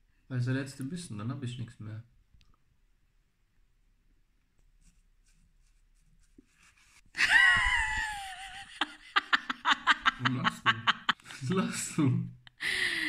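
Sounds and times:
laughter: 0:07.2 - 0:12.7.

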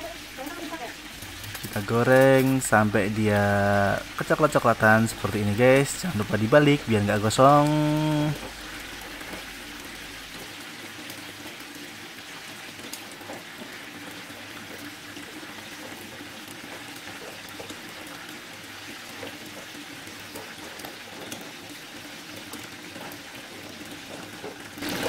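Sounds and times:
fish frying in oil: 0:00.0 - 0:25.0.

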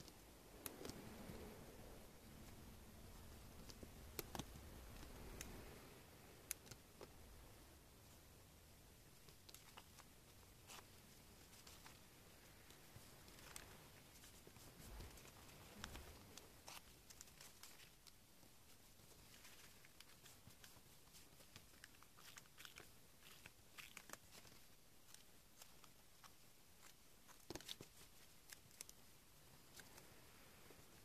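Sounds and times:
paper rustling and folding: 0:09.1 - 0:31.0.

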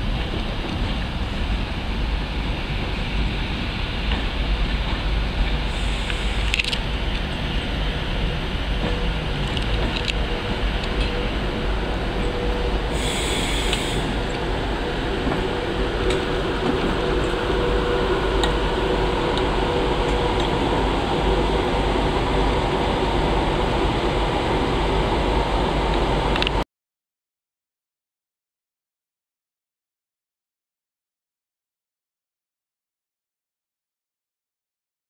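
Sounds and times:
electric train humming and whining: 0:00.0 - 0:26.6
brief hiss: 0:13.0 - 0:14.2.

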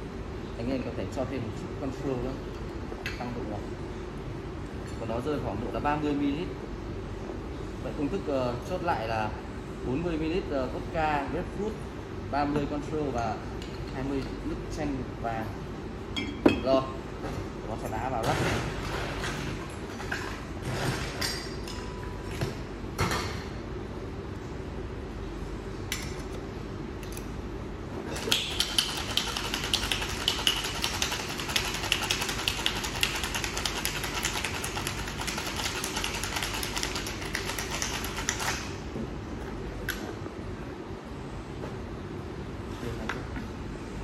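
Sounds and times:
ice rattling in cocktail shaker: 0:28.3 - 0:38.6.

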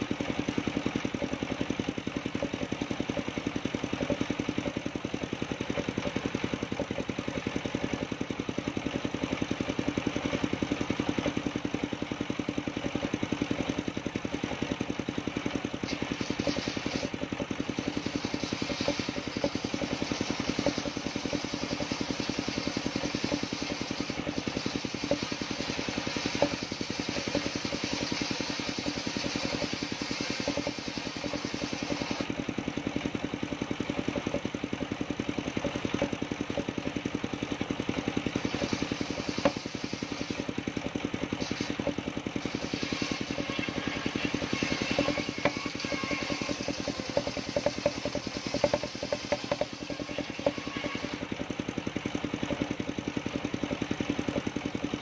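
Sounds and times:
circular sawmill cutting wood: 0:00.0 - 0:55.0
timber knocks: 0:44.5 - 0:51.2.

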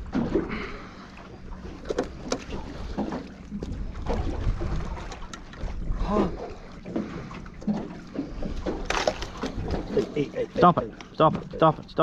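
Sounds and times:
water moving around boat: 0:00.0 - 0:12.0
wind rumbling on microphone: 0:03.6 - 0:06.6.

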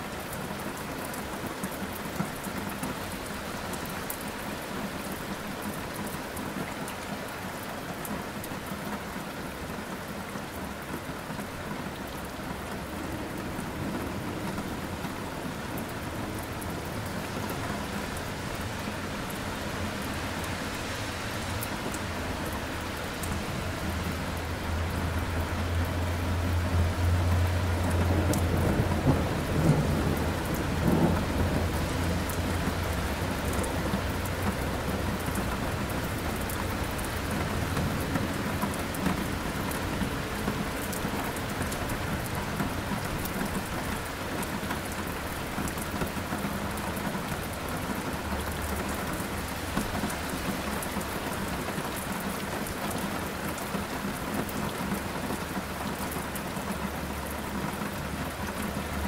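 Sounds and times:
steady rain falling: 0:00.0 - 0:59.0
low rolling thunder: 0:27.8 - 0:32.5.

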